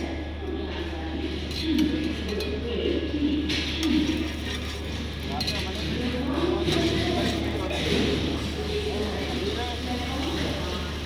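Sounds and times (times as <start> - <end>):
metal spatula scraping on griddle: 3.8 - 5.9.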